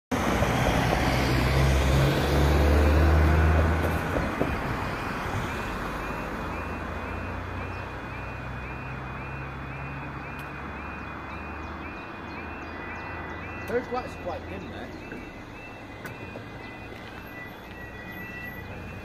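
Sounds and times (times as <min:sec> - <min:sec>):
road vehicle engine running: 0:00.1 - 0:19.0
level crossing alarm tone: 0:05.4 - 0:19.0.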